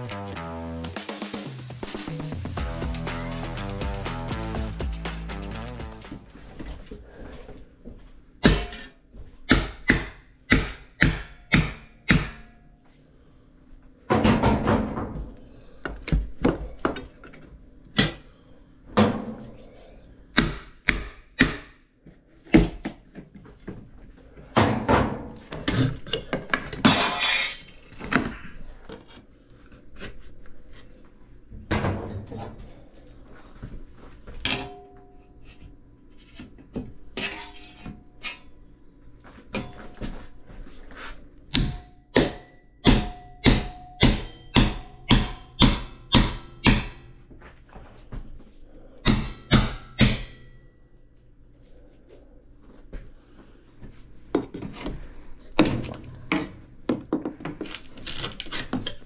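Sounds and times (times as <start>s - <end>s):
hammer striking pry bar: 8.4s - 8.9s, 9.5s - 12.6s, 20.4s - 21.8s, 41.5s - 47.1s, 49.0s - 50.6s
wood trim cracking and ripping: 57.5s - 59.0s.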